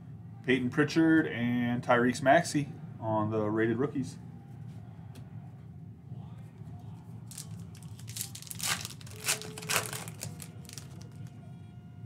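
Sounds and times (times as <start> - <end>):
card pack wrapper tearing and crinkling: 7.3 - 11.3.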